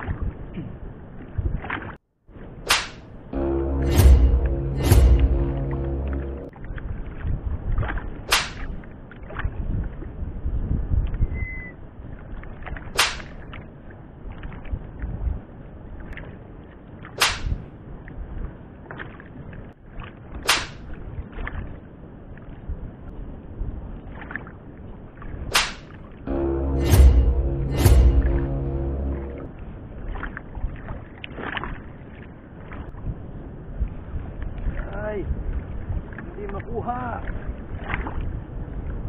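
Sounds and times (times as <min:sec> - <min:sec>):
wind rumbling on microphone: 0:00.0 - 0:03.4, 0:06.4 - 0:26.3, 0:29.3 - 0:39.0
sharp whooshes: 0:02.6 - 0:03.1, 0:08.3 - 0:08.8, 0:13.0 - 0:13.4, 0:17.2 - 0:17.6, 0:20.4 - 0:20.9, 0:25.5 - 0:26.0.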